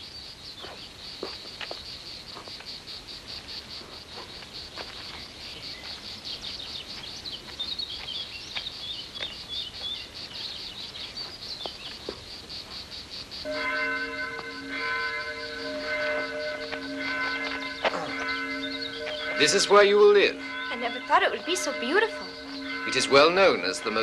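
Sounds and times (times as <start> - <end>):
crickets chirping: 0.0 - 24.0
birds chirping: 3.3 - 24.0.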